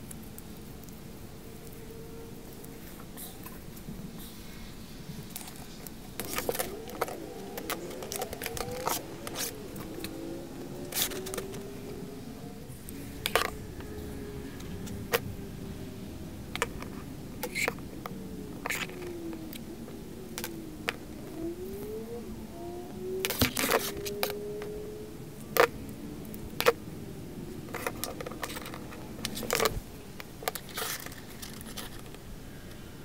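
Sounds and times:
metal tubing clinking and scraping: 5.3s - 10.2s, 30.4s - 32.2s.

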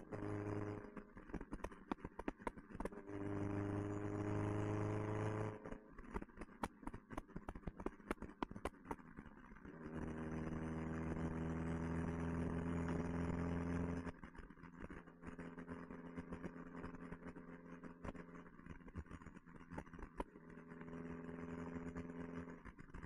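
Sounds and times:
sharp clicks and knocks: 6.2s - 9.0s.

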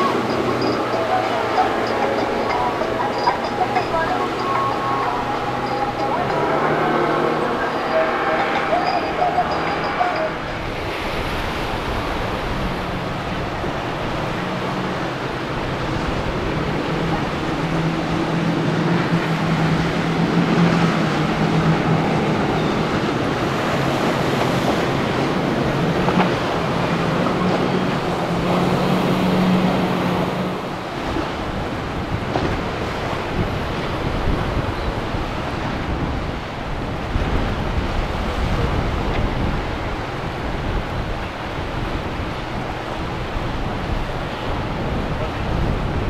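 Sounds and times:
boat engines droning: 0.0s - 46.0s
wind buffeting microphone: 0.0s - 46.0s.

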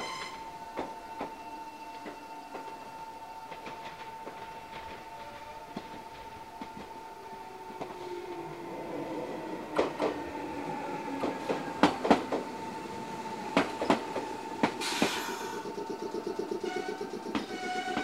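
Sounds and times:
train wheels clacking over rail joints: 11.2s - 12.6s, 13.4s - 18.0s
air hiss: 14.6s - 18.0s.

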